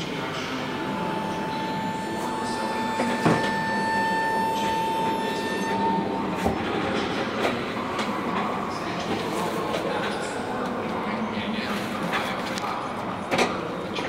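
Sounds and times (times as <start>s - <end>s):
train high whine: 0.0s - 9.7s.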